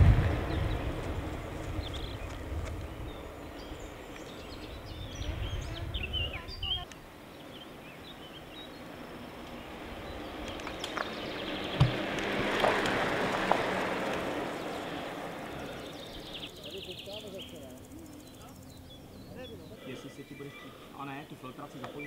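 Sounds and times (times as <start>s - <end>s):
wind rumble on microphone: 0.0s - 6.9s
kick scooter tyres rolling on asphalt: 0.0s - 18.4s
birds chirping: 0.0s - 22.0s
sharp knock: 11.8s - 12.0s.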